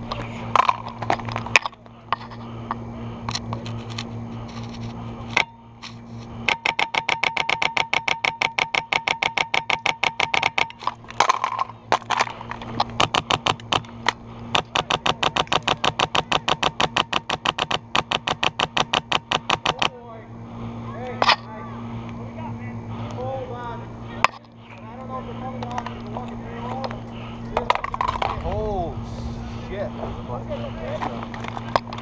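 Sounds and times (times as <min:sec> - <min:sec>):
airsoft gun rapid fire: 0:06.5 - 0:10.7, 0:13.0 - 0:13.8, 0:14.5 - 0:19.9.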